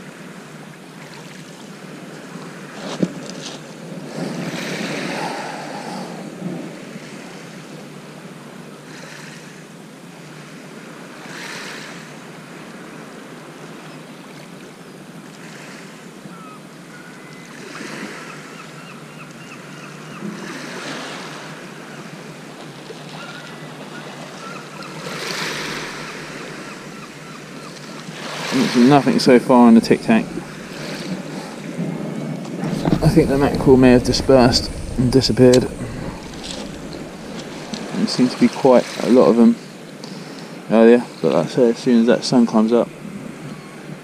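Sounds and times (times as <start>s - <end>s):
waves washing over shingle: 20.4s - 40.7s.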